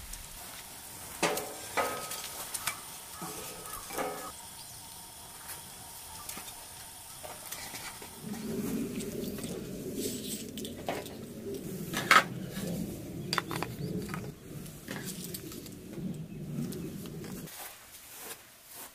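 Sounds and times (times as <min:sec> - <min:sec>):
wood fire crackling: 0:00.0 - 0:17.9
wooden sticks knocking on metal: 0:01.2 - 0:04.4, 0:13.3 - 0:15.2.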